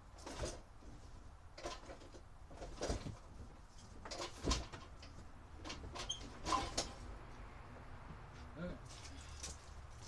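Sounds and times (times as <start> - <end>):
handling knocks and rustles: 0.0 - 7.1.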